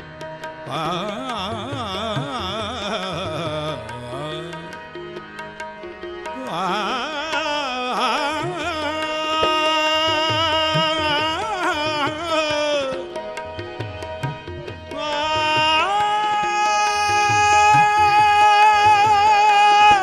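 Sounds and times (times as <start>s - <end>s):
man singing: 0.6s - 5.0s, 6.2s - 20.0s
tabla strokes: 8.2s - 20.0s.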